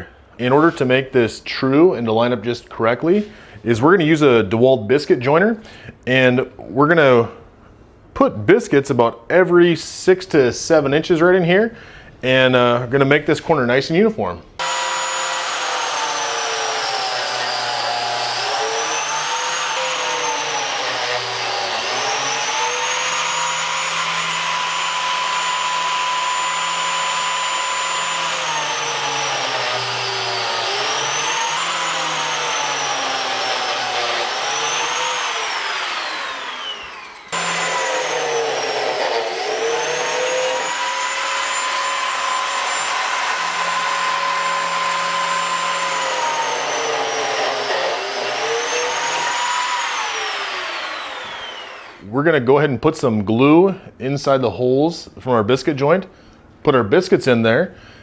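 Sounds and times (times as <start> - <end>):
biscuit joiner motor whine: 14.6 - 52.0
blade cutting into wood: 14.6 - 52.0.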